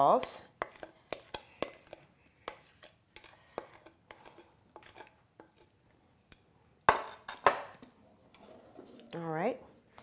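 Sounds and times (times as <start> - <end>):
spoon scraping glass bowl: 0.6 - 5.7.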